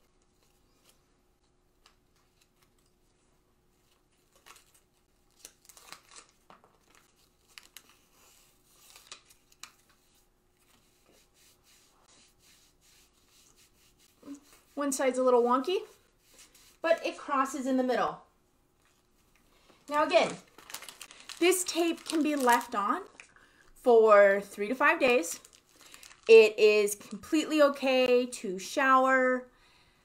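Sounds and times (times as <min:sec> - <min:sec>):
tape crinkling and tearing: 0:03.8 - 0:10.8, 0:19.9 - 0:23.4, 0:25.3 - 0:26.4.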